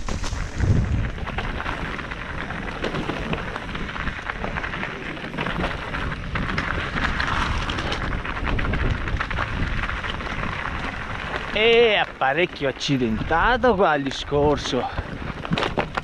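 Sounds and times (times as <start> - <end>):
low rumble: 0.0 - 2.4
tyres crunching over gravel: 0.0 - 16.0.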